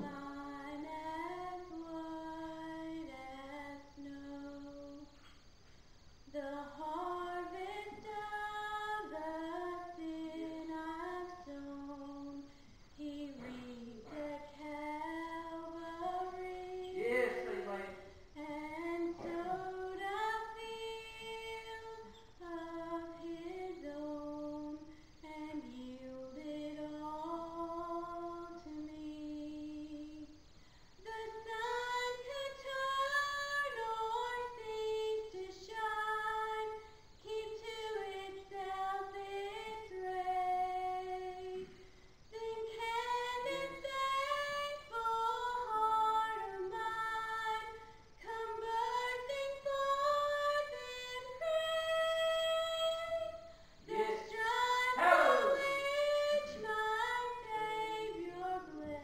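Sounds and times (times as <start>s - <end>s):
woman singing unaccompanied: 0.0s - 5.2s, 6.2s - 59.0s.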